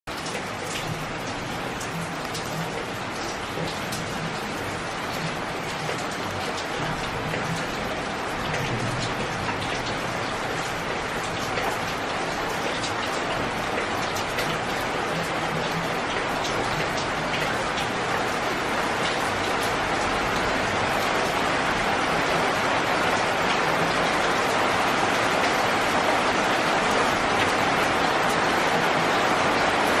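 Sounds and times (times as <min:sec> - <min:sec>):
steady rain: 0:00.1 - 0:30.0.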